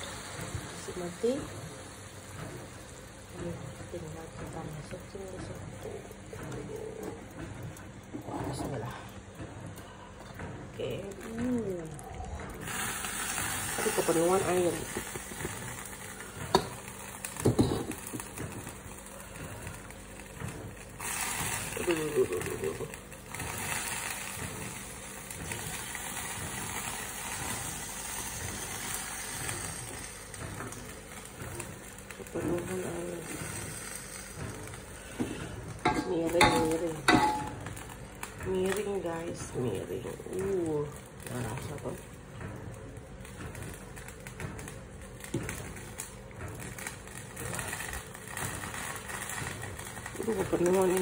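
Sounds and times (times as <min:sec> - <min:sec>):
soup bubbling at the boil: 0:00.0 - 0:39.2
gas burner flame: 0:00.0 - 0:51.0.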